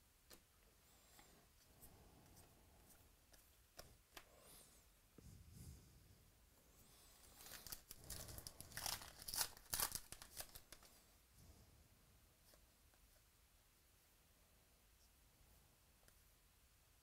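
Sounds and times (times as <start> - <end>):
wrapper tearing and crinkling: 7.4 - 10.9.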